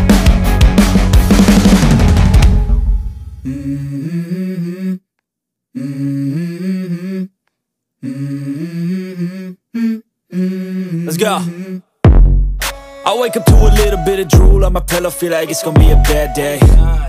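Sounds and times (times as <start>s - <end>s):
rock music with drums: 0.0s - 3.2s
person humming a melody: 3.4s - 5.1s, 5.7s - 7.4s, 8.0s - 11.8s, 13.1s - 17.0s.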